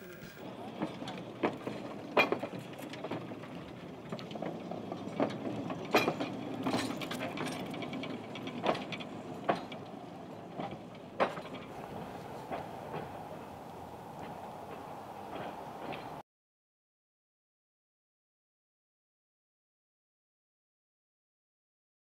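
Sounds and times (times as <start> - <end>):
tram clanks and knocks: 0.0 - 16.2
tram rattling rumble: 0.0 - 16.2.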